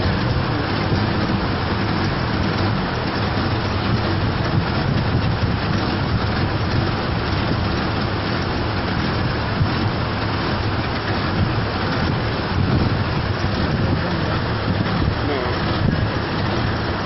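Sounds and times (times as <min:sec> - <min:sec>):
rushing flood water: 0:00.0 - 0:17.0
vehicle engine running: 0:00.0 - 0:17.0.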